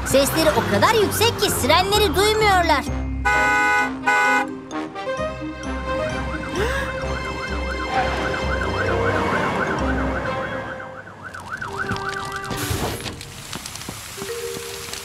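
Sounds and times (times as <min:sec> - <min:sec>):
cartoon siren wailing: 0:07.8 - 0:12.4.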